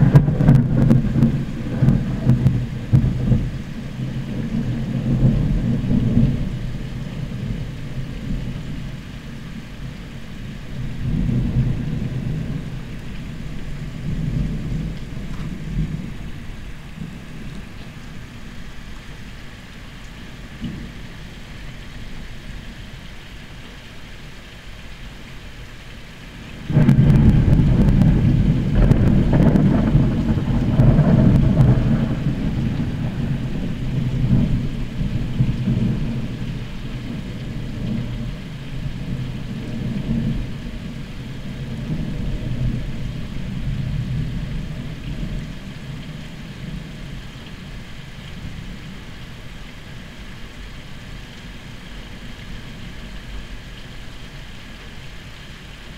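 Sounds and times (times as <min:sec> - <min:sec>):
thunder crack and rumble: 0:00.0 - 0:08.9, 0:10.7 - 0:17.7, 0:26.5 - 0:47.0.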